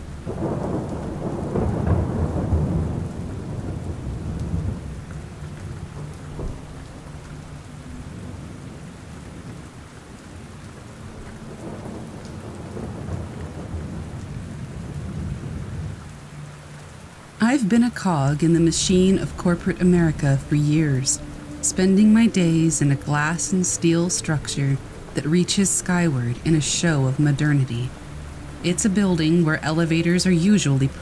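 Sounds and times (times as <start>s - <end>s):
steady rain: 0.0s - 31.0s
rolling thunder: 0.2s - 9.8s, 11.1s - 16.1s.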